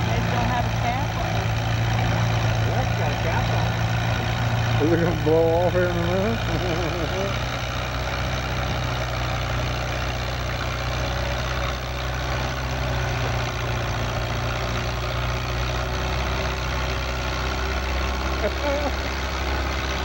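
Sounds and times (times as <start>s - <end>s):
tractor engine idling: 0.0s - 20.0s.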